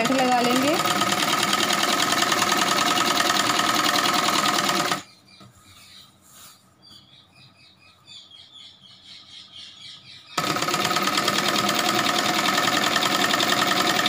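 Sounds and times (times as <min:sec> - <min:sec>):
sewing machine running: 0:00.0 - 0:05.0, 0:10.4 - 0:14.0.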